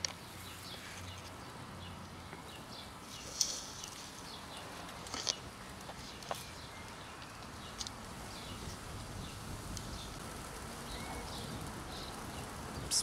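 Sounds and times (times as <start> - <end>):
faint bird chirps: 10.8 - 13.0.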